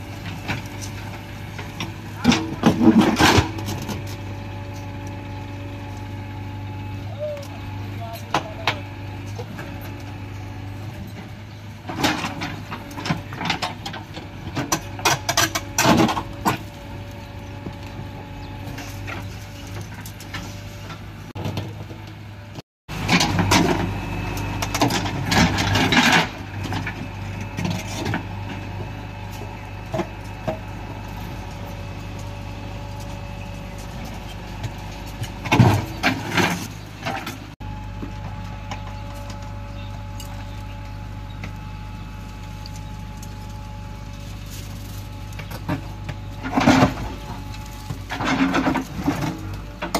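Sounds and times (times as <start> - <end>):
diesel engine running: 0.0 - 49.9
bucket scraping rubble: 2.2 - 4.2, 44.1 - 49.9.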